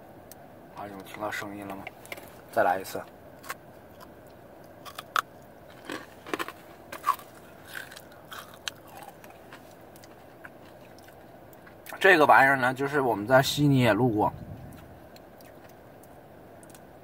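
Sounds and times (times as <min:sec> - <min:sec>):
person chewing crunchy chocolate: 0:03.4 - 0:11.9.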